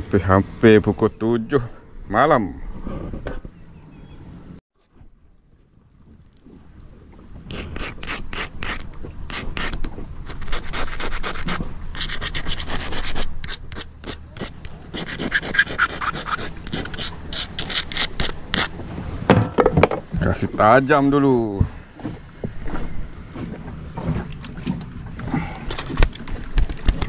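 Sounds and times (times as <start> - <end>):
blade shaving a wooden stick: 7.5 - 18.8.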